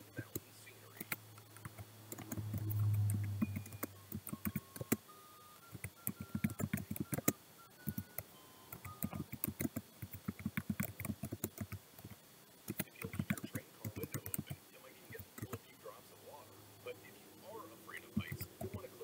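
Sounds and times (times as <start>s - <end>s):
low hum: 0.0s - 4.0s
typing on computer keyboard: 0.3s - 5.0s, 5.6s - 14.6s, 15.2s - 15.6s, 18.2s - 18.9s.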